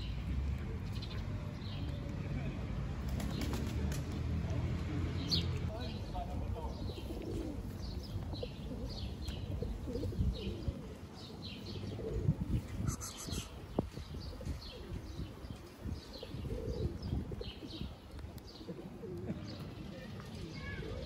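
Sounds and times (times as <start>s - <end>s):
small birds chirping: 5.2s - 21.0s
pigeons cooing: 6.7s - 21.0s.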